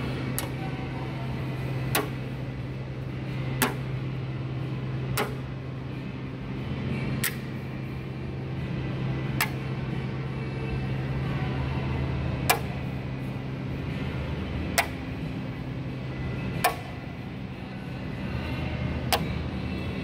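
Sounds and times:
steady low hum: 0:00.0 - 0:20.0
magnet clicking onto steel panel: 0:01.9 - 0:02.2, 0:07.2 - 0:07.5.

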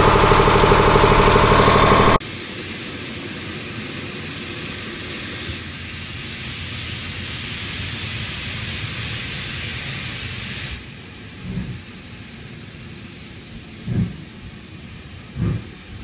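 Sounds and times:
steam hissing: 0:00.0 - 0:16.0
wind buffeting microphone: 0:13.8 - 0:14.6.

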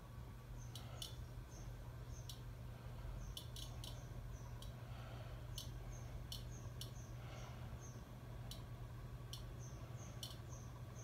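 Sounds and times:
ceiling fan motor hum: 0:00.0 - 0:11.0
sharp clicks: 0:00.6 - 0:01.2, 0:03.3 - 0:04.0, 0:05.5 - 0:07.0, 0:08.4 - 0:08.7, 0:10.2 - 0:10.5.

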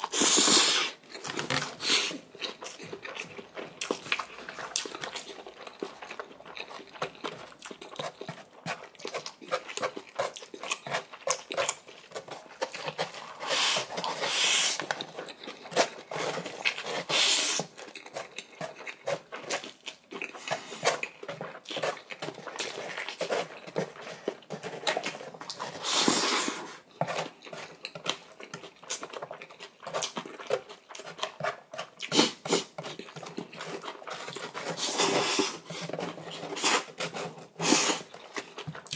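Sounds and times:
noodles slurped: 0:00.0 - 0:12.0, 0:12.8 - 0:38.9
wet chewing: 0:00.0 - 0:38.9.

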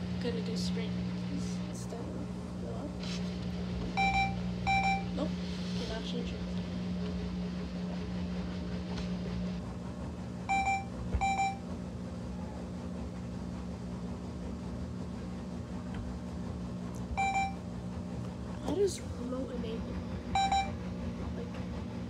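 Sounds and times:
washing machine humming: 0:00.0 - 0:22.0
control panel beeps: 0:04.0 - 0:05.2, 0:10.5 - 0:11.6, 0:17.2 - 0:17.6, 0:20.4 - 0:20.8.

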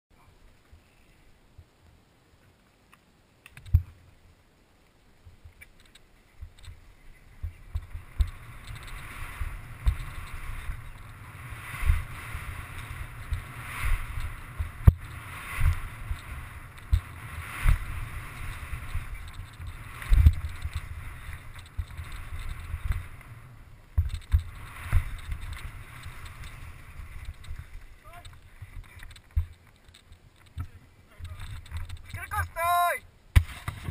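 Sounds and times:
bike tyres on dirt: 0:00.2 - 0:33.9
wind rush: 0:06.5 - 0:29.5.

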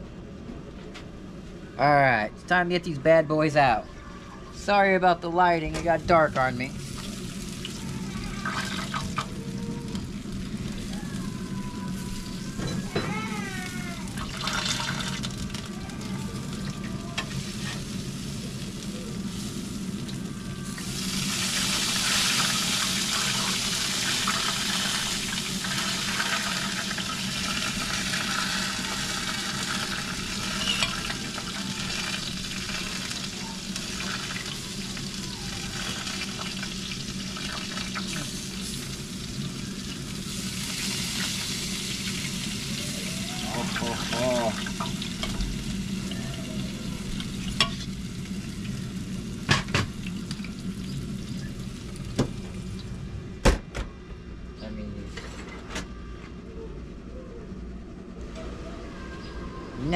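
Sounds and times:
low steady hum: 0:00.0 - 0:59.9
fat sizzling on hot surfaces: 0:06.0 - 0:53.0.

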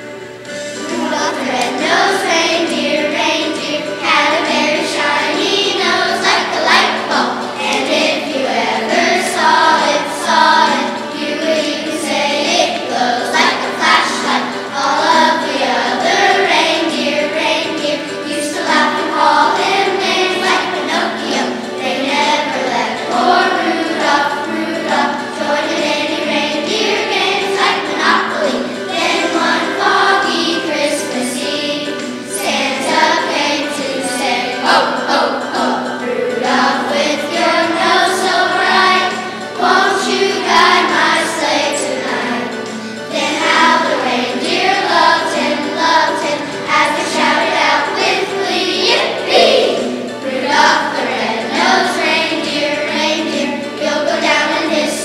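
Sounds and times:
children's choir singing: 0:00.0 - 0:55.0.

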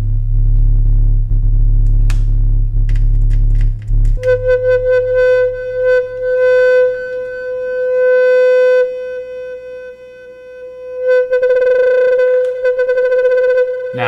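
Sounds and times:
synthesizer oscillator tone: 0:04.1 - 0:14.0.

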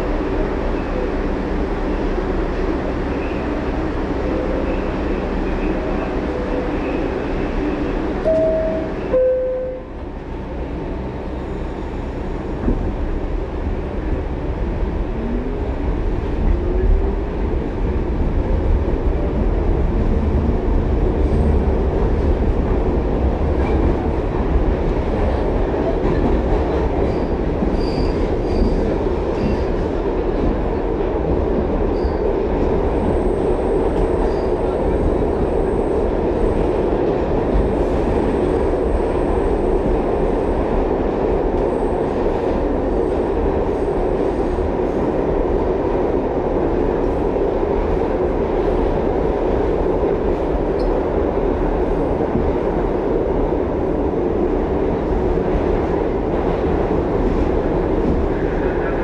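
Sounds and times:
train wheels rumbling on rail: 0:00.0 - 0:59.0
falling two-note chime: 0:08.3 - 0:09.9.

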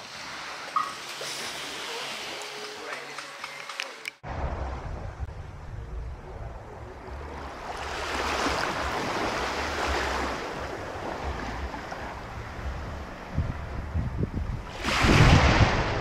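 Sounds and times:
small waves washing onto beach: 0:00.0 - 0:03.2, 0:07.2 - 0:13.2, 0:14.6 - 0:16.0
wind rumbling on microphone: 0:04.2 - 0:16.0.

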